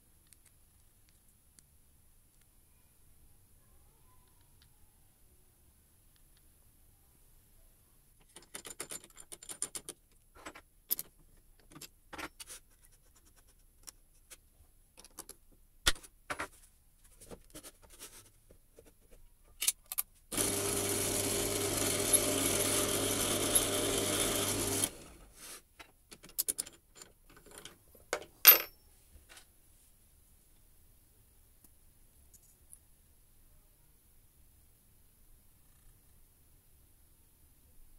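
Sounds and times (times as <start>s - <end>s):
small clicks and metal knocks: 8.2s - 12.6s, 15.0s - 15.6s, 25.8s - 29.5s
drill press motor running: 20.3s - 25.3s.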